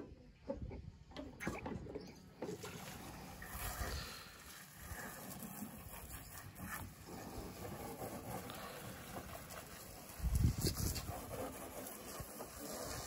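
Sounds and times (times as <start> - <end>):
wind rumbling on microphone: 9.0 - 13.0.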